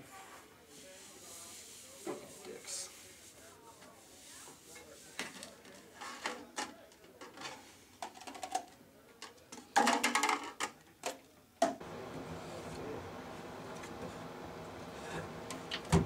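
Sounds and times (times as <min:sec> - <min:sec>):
plastic cups crinkling: 0:05.2 - 0:11.2
cans and cups clattering: 0:06.2 - 0:08.8, 0:09.5 - 0:11.8.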